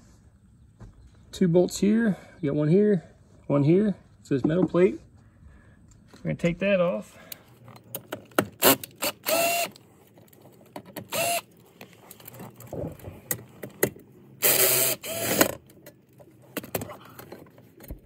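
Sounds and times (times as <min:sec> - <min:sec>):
cordless drill spinning: 0:08.6 - 0:09.8, 0:11.0 - 0:12.6, 0:14.4 - 0:15.6.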